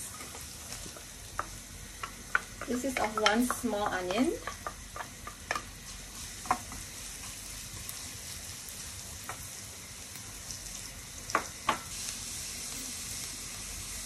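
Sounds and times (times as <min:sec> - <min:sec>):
onion and garlic sizzling in a pan: 0:00.0 - 0:14.0
wooden spatula knocking on a pan: 0:01.4 - 0:05.7.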